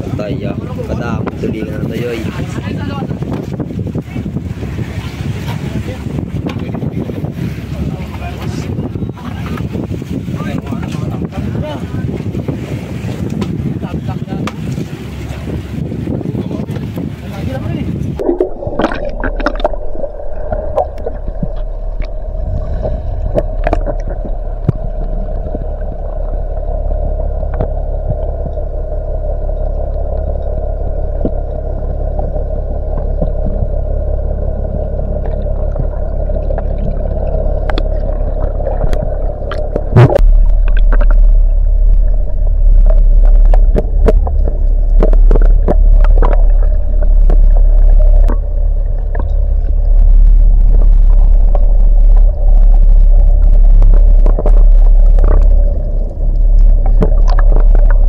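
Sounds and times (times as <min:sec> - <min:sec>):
low underwater rumble: 0:00.0 - 0:58.0
muffled underwater hum: 0:00.0 - 0:58.0.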